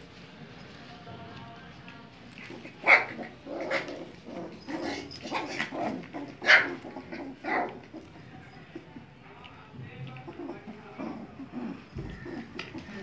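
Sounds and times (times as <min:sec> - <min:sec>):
puppies yipping and barking: 0:02.3 - 0:09.2, 0:10.1 - 0:13.0.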